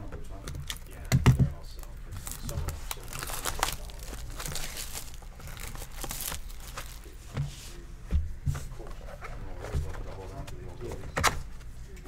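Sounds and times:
plastic shrink wrap crinkling: 0:00.4 - 0:07.3.

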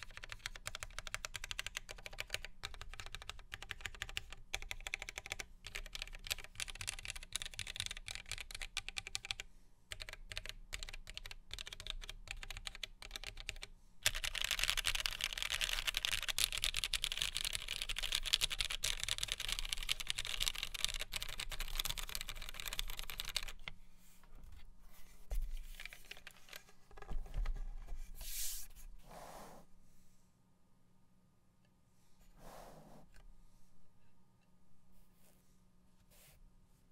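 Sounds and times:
mechanical keyboard typing: 0:00.0 - 0:23.7.

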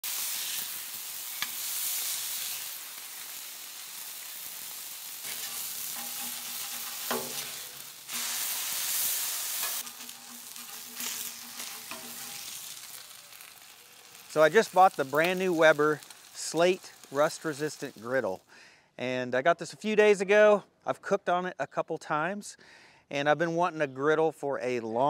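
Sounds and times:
meat sizzling on a griddle: 0:00.0 - 0:18.4
metal spatula knocking on griddle: 0:05.3 - 0:07.6.

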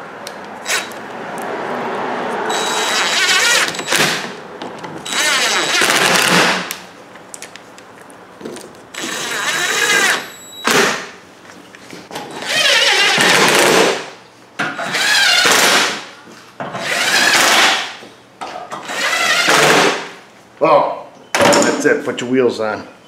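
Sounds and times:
cordless power tool driving screws: 0:02.5 - 0:04.3, 0:05.0 - 0:06.6, 0:09.0 - 0:10.9.

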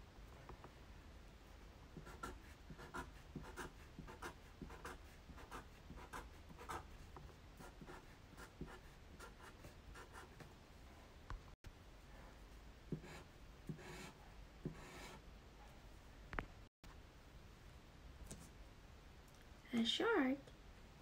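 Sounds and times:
marker scratching on paper: 0:02.0 - 0:10.4, 0:12.9 - 0:15.2.

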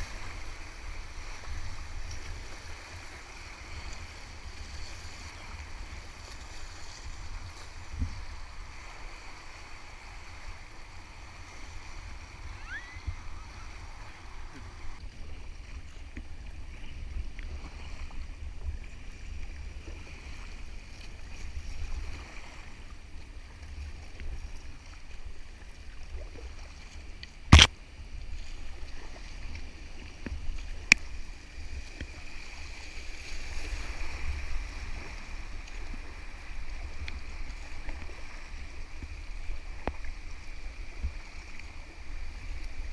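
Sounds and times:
river water rushing and splashing: 0:00.0 - 0:15.0, 0:20.0 - 0:42.9
wind rumble on microphone: 0:00.0 - 0:42.9
small click: 0:27.2 - 0:27.7.

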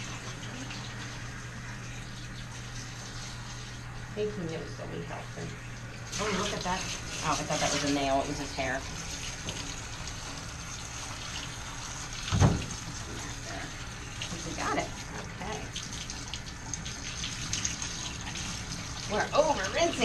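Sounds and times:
water spraying from hose: 0:06.0 - 0:20.0
loud thump: 0:12.3 - 0:12.7.

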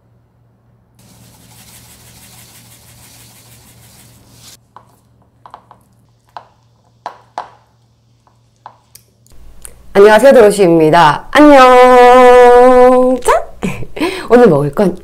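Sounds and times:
seeds shaken from plastic container: 0:01.0 - 0:04.6.

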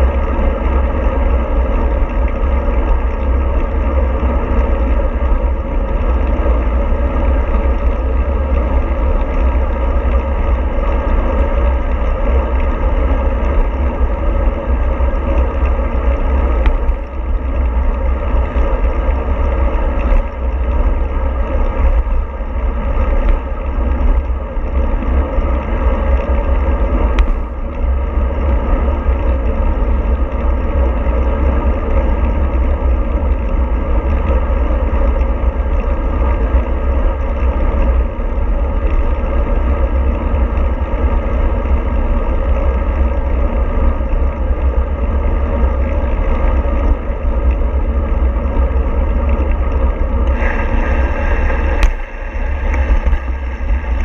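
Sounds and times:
rushing road noise: 0:00.0 - 0:54.0
vehicle rumble: 0:00.0 - 0:54.0.

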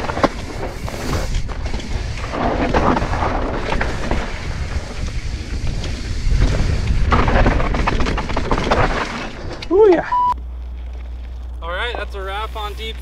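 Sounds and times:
wind buffeting microphone: 0:00.0 - 0:08.5
bike rattling over rocks: 0:00.0 - 0:10.0
bike rolling on rocky trail: 0:00.0 - 0:13.0.

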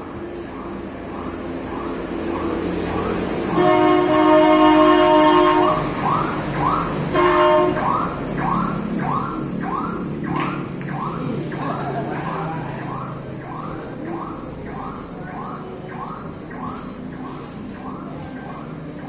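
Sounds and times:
wailing alarm: 0:00.0 - 0:19.0
steady horn tone: 0:02.8 - 0:06.2, 0:07.0 - 0:08.2.

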